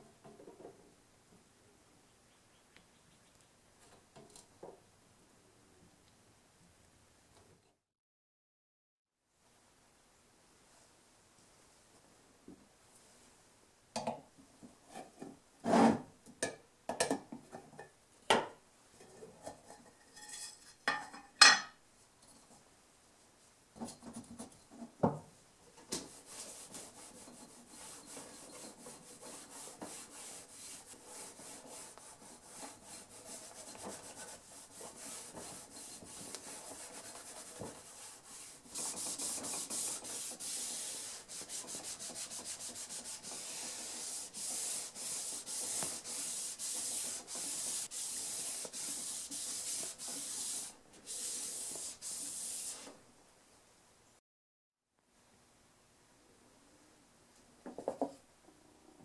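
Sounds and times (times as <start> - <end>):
cloth rubbing on saw blade: 26.1 - 53.0.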